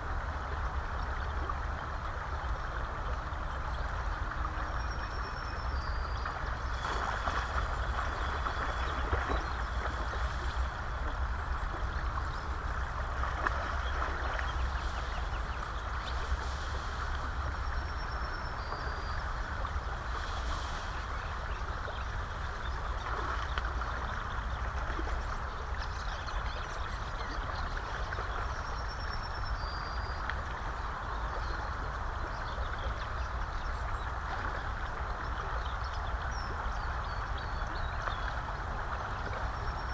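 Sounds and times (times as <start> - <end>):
constant low rumble: 0.0 - 39.9
river water rushing: 5.4 - 25.8.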